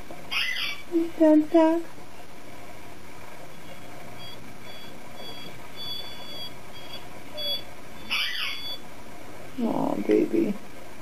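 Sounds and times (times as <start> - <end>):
puppy whining: 0.3 - 0.9, 3.5 - 8.8.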